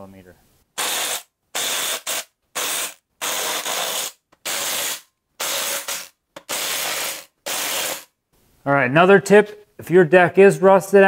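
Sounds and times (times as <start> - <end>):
impact wrench hammering: 0.8 - 8.1.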